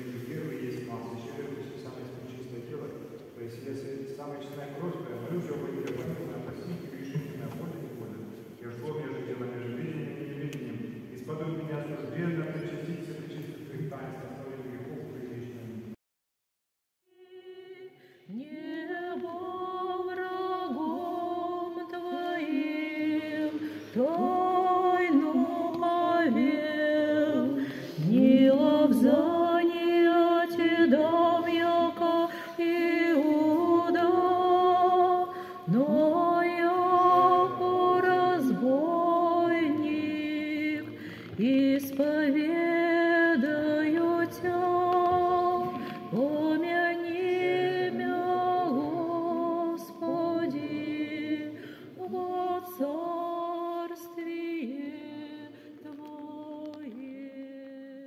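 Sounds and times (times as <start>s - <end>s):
women singing church chant: 17.2s - 58.0s.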